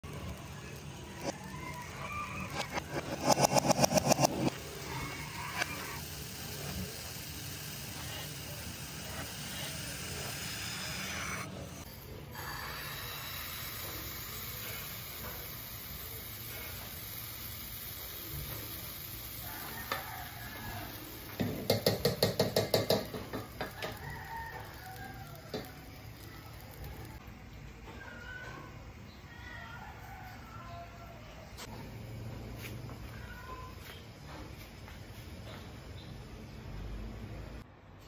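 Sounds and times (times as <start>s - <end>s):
pancake batter sizzling in a pan: 4.6s - 27.2s.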